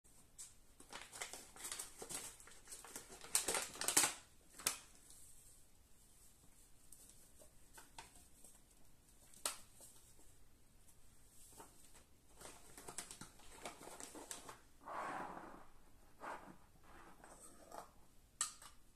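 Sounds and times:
plastic bag crinkling: 0.8s - 5.0s.

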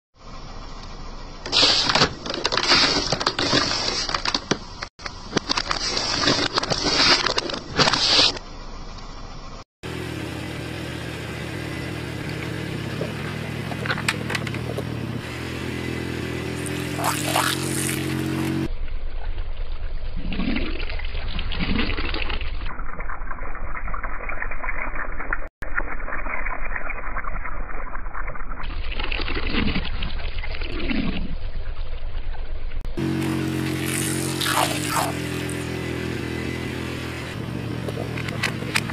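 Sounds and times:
soda hissing from cans: 1.5s - 2.0s
water bead balloons bursting under tyre: 1.5s - 4.6s, 33.8s - 35.6s.

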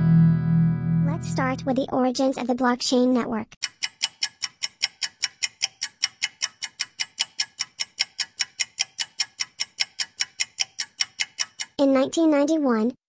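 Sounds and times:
fast clock-like ticking: 3.6s - 11.8s.

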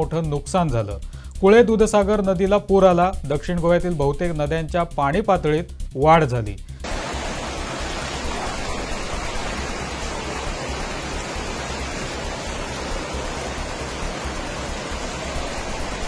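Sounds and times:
river water rushing: 6.8s - 16.0s.

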